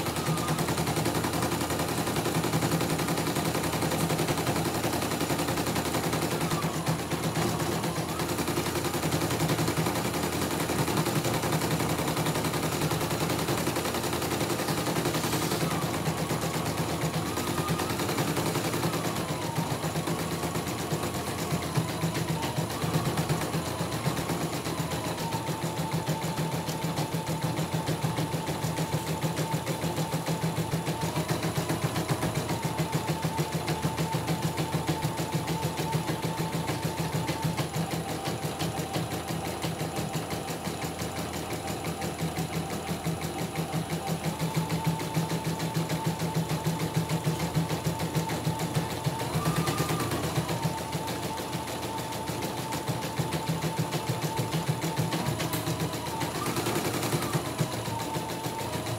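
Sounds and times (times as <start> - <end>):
high machine whine: 0.0 - 58.9.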